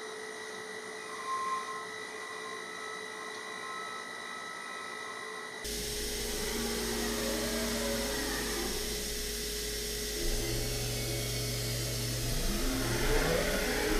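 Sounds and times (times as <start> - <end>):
milling spindle whirring hiss: 5.6 - 13.9
low hum: 5.7 - 13.9.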